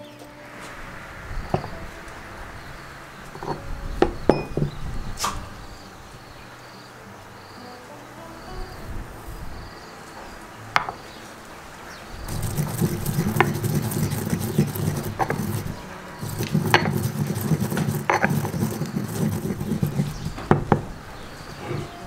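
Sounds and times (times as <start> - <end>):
pestle grinding seeds in mortar: 12.3 - 21.0.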